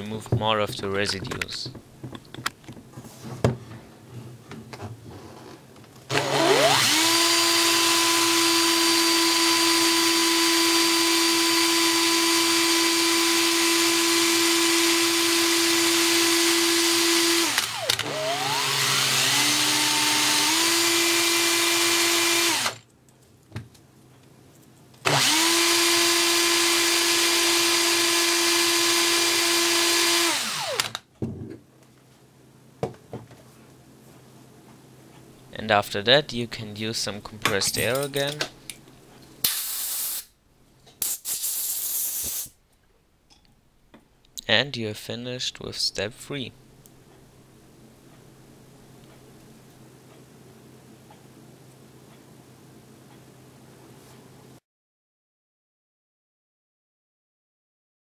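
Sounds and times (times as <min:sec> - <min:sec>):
electric drill whining: 0:06.1 - 0:22.8, 0:25.0 - 0:31.0.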